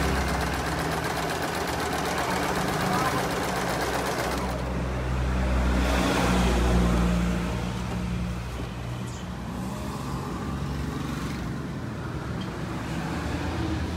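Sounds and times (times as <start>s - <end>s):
sewing machine motor humming: 0.0s - 4.8s.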